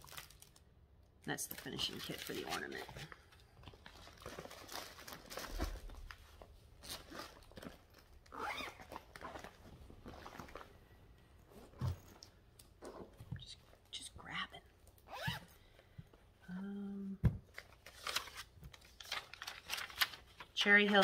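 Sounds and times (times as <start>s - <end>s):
packaging rustling and crinkling: 0.0s - 0.7s, 1.4s - 10.9s, 17.4s - 21.0s.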